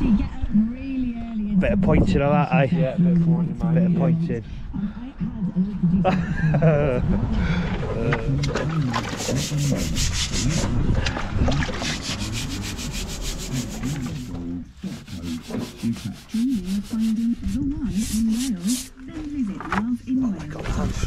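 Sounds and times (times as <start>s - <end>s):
hand tool scraping mortar joints: 9.0s - 10.7s, 11.7s - 19.0s.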